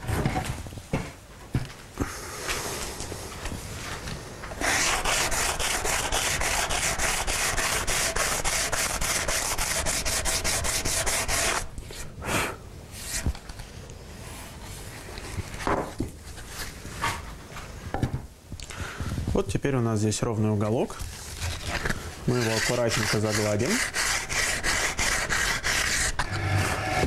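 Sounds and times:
sandpaper rubbing on wood: 4.6s - 11.7s, 21.4s - 27.0s.

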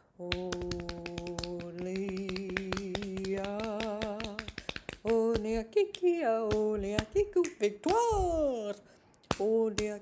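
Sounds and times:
quick even tapping: 0.3s - 5.6s.

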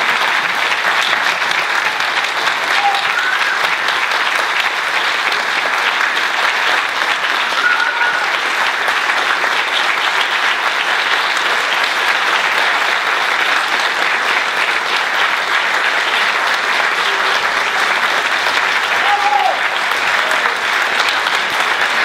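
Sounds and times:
large audience applauding: 0.0s - 22.0s.

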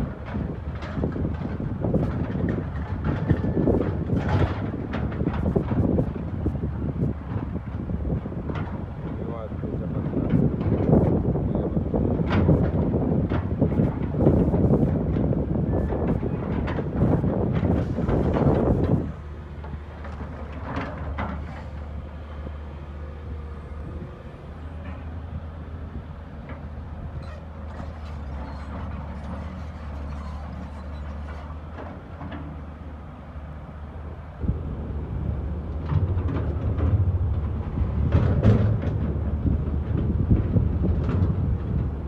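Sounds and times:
heavy diesel machinery droning: 0.0s - 42.0s
knocks and clatter: 0.1s - 6.3s, 35.8s - 42.0s.

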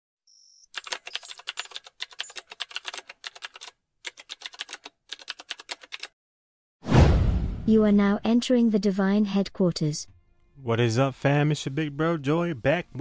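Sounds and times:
keyboard typing clicks: 0.8s - 6.1s.

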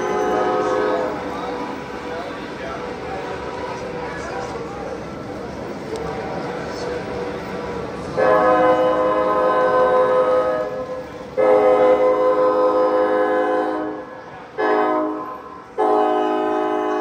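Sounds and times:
train horn blasts: 0.0s - 1.8s, 8.2s - 17.0s.

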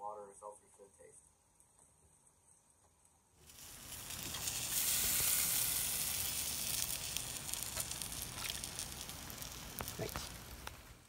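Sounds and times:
fine crackles: 3.4s - 11.0s
seafood sizzling on a grill: 3.4s - 11.0s.

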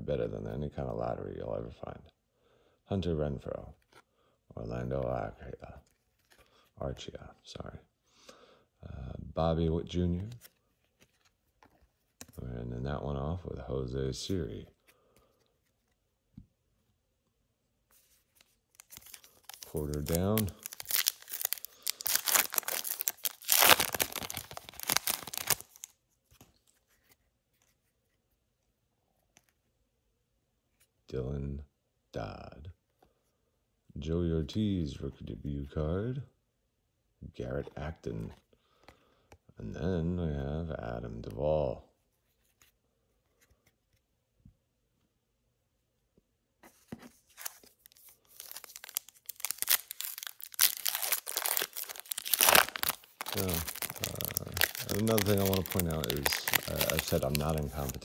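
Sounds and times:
wrapper tearing and crinkling: 18.7s - 26.0s, 47.4s - 58.0s.

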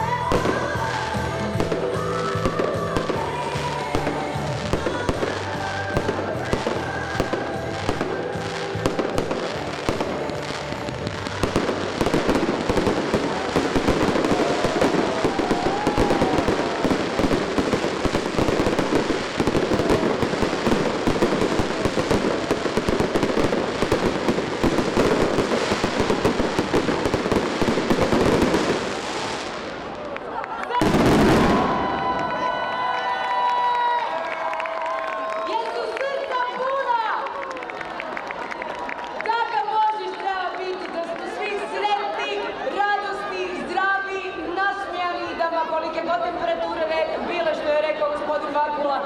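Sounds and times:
fireworks bangs and crackles: 0.0s - 33.0s.

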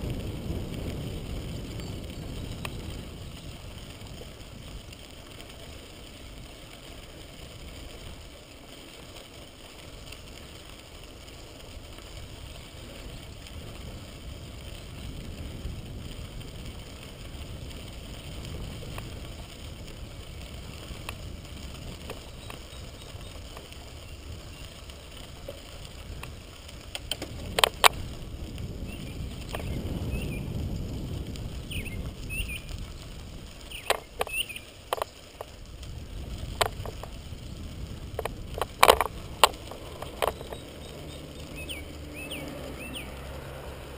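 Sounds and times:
wind on microphone: 0.0s - 6.6s, 12.1s - 43.9s
bicycle tyres rumbling on gravel: 0.0s - 43.9s
sharp clicks and rattles: 15.6s - 28.6s, 30.6s - 41.6s.

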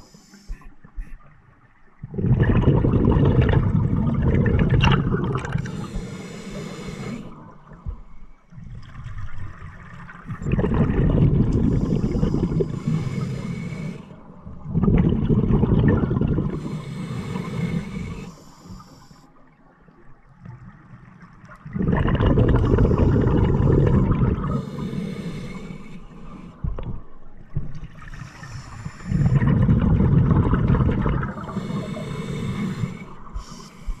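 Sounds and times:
exhaled bubbles underwater: 1.6s - 18.9s, 19.8s - 34.0s
regulator hiss: 5.6s - 7.4s, 11.7s - 14.1s, 16.6s - 19.3s, 28.2s - 29.4s, 31.3s - 34.0s.

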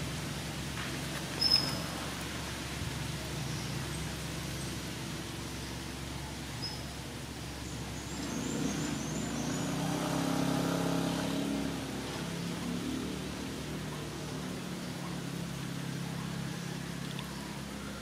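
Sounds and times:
vehicle engine passing: 7.6s - 18.0s.

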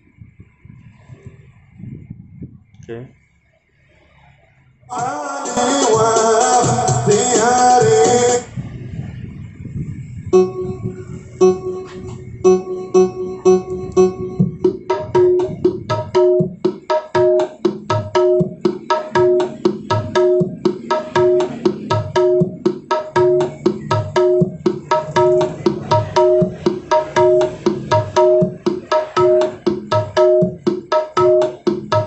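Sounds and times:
steady drum beat: 4.9s - 8.4s, 10.4s - 32.0s
music through speaker: 4.9s - 8.6s, 10.4s - 32.0s.

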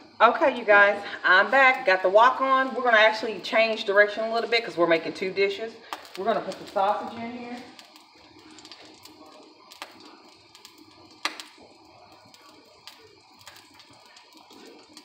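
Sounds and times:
oil crackling in a wok: 0.1s - 15.0s
small oil pops: 7.8s - 11.7s.

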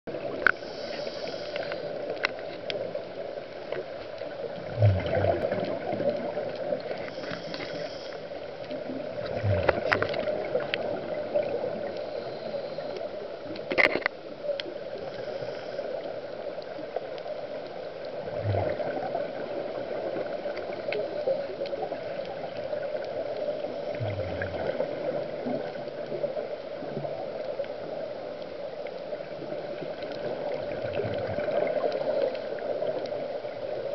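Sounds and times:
steady hiss: 0.1s - 4.6s, 5.8s - 30.6s
exhaled bubbles gurgling: 0.1s - 13.0s, 18.0s - 28.3s, 29.1s - 33.9s
diver breathing through regulator: 0.5s - 2.0s, 7.0s - 8.3s, 11.9s - 13.1s, 15.0s - 16.0s.

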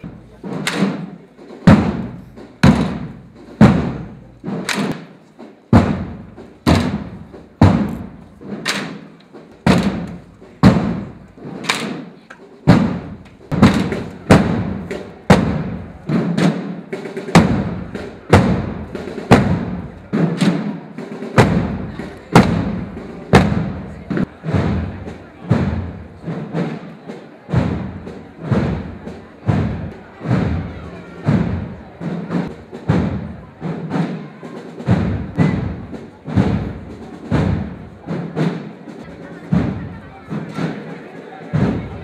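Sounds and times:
marching drum beating: 0.0s - 42.0s.

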